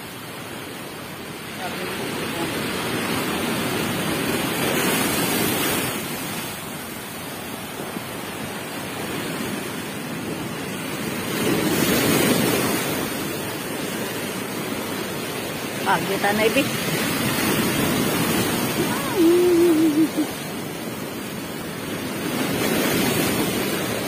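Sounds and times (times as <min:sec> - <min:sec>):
waves crashing against shore: 0:00.0 - 0:24.0.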